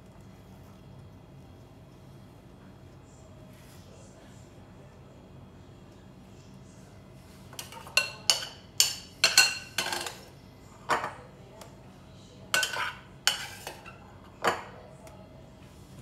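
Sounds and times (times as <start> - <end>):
utensil clinking against dish: 7.5 - 10.3, 12.5 - 14.8.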